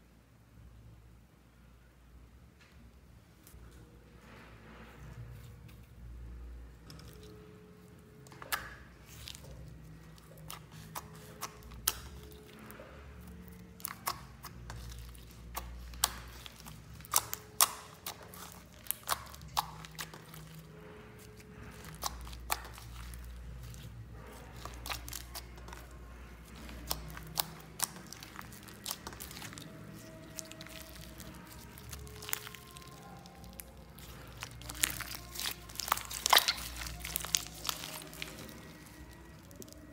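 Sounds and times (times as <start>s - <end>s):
slime squeezed by hand: 21.3s - 39.8s.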